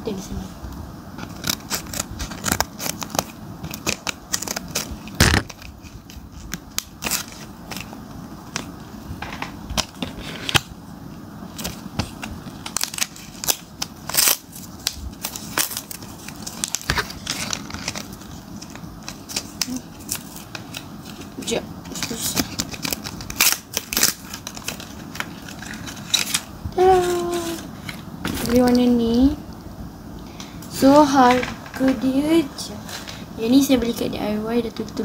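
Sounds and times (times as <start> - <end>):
plastic packaging crackling: 1.2 - 8.8, 11.5 - 29.0.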